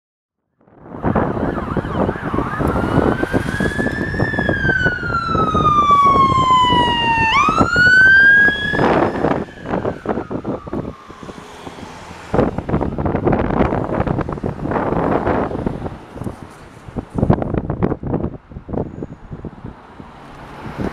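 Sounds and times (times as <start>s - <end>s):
wind buffeting microphone: 0.6s - 20.9s
ambulance siren wailing: 0.7s - 15.5s.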